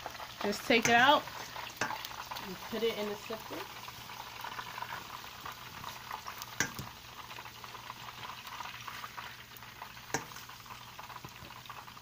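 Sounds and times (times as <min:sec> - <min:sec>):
hot oil crackling and sizzling: 0:00.0 - 0:12.0
metal tongs clacking on colander: 0:00.8 - 0:01.1, 0:06.6 - 0:06.9.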